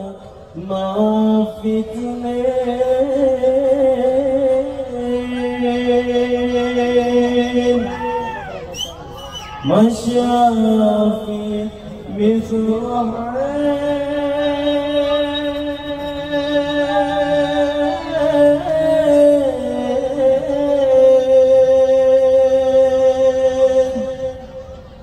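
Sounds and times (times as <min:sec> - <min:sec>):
person singing long gliding notes: 0:00.0 - 0:08.4, 0:09.6 - 0:25.0.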